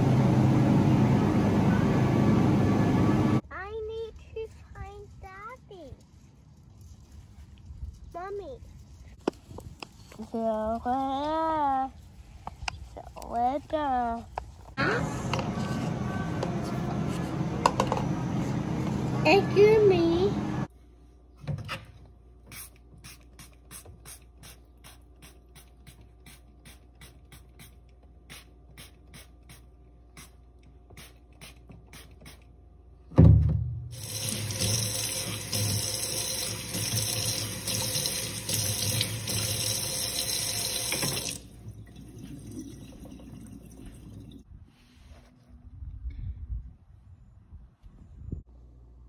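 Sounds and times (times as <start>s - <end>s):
thump: 33.1s - 33.9s.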